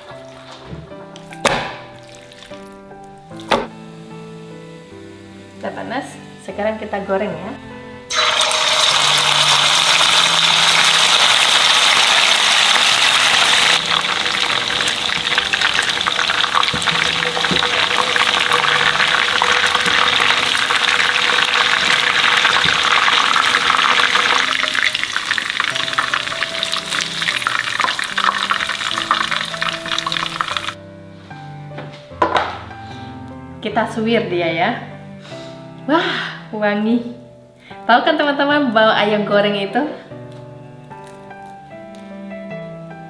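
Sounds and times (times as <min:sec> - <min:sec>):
chicken sizzling in hot oil: 0:08.1 - 0:30.8.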